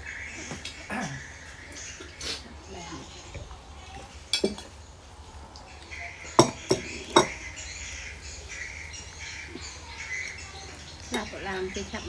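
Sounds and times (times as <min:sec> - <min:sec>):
cutlery clinking on plates: 0:04.3 - 0:04.7, 0:06.4 - 0:07.4.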